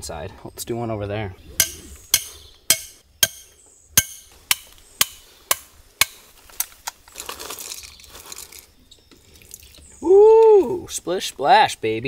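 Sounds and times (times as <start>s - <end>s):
hammer striking metal stake: 1.6s - 6.2s
scuffling in weeds: 6.0s - 8.8s.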